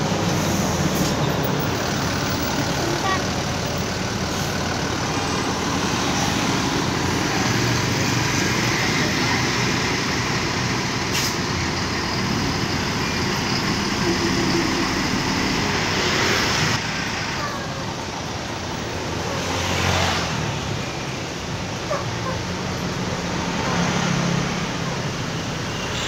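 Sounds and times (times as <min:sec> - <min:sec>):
coach diesel engine running: 0:00.0 - 0:19.4.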